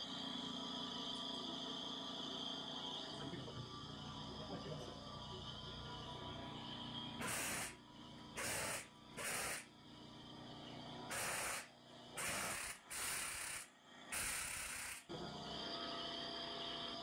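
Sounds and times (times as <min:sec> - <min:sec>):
compressed air hiss bursts: 0:07.2 - 0:07.8, 0:08.4 - 0:09.7, 0:11.1 - 0:15.0.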